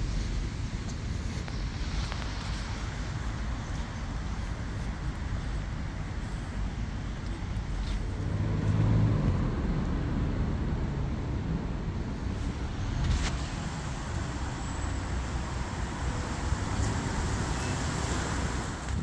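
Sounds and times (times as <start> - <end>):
road traffic hum: 0.0 - 19.0.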